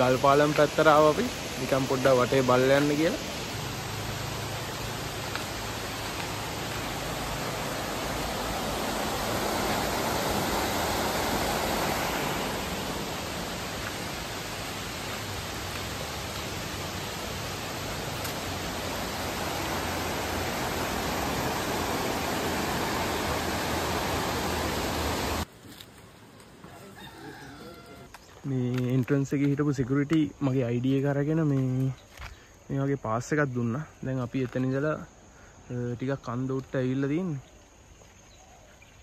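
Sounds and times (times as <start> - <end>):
stream rushing over rocks: 0.0 - 25.5.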